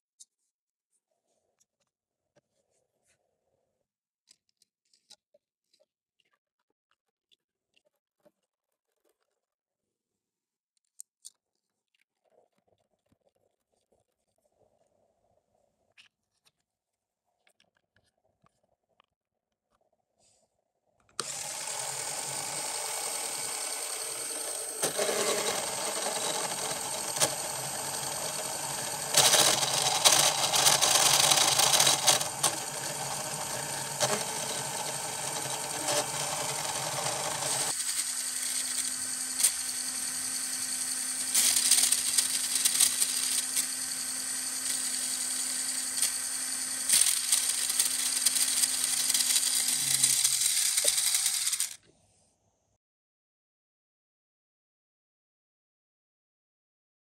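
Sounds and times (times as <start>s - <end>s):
electric motor running: 21.2s - 51.8s
plastic gears whirring and rattling: 21.2s - 51.8s.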